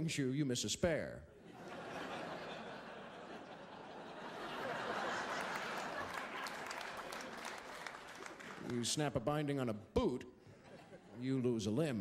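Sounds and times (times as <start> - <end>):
audience laughing: 1.4 - 8.6
audience applauding: 4.5 - 8.9.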